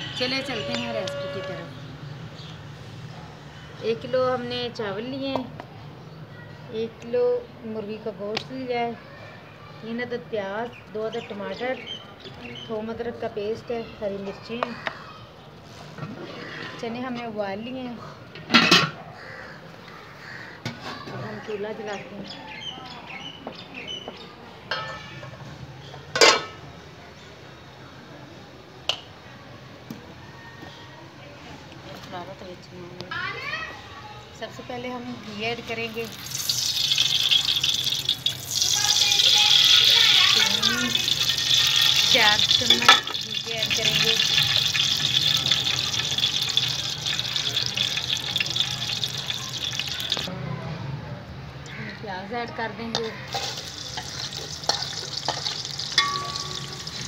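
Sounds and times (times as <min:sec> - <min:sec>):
ghee sizzling and crackling: 0:35.2 - 0:50.3, 0:53.1 - 0:57.0
pot lid clanking: 0:42.6 - 0:43.2, 0:53.3 - 0:57.0.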